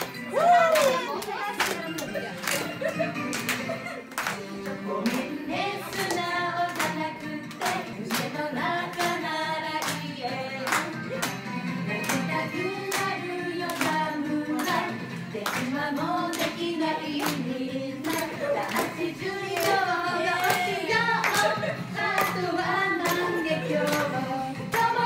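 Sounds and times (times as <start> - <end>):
audience clapping along: 0.0 - 25.0
backing music: 0.0 - 25.0
woman singing pop song: 4.4 - 11.2, 11.8 - 25.0.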